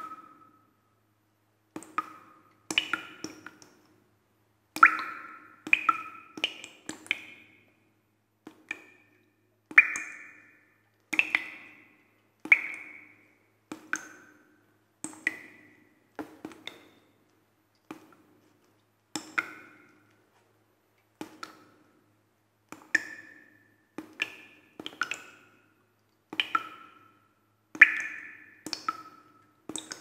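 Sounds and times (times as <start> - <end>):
water drops plinking: 0.0 - 0.5, 4.8 - 7.5, 9.8 - 10.6, 11.2 - 14.4, 27.8 - 30.0.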